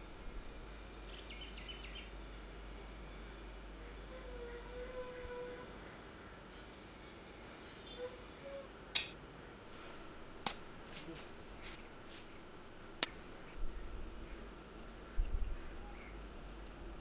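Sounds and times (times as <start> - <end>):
metal clicks of bolt and nuts: 14.8 - 17.0.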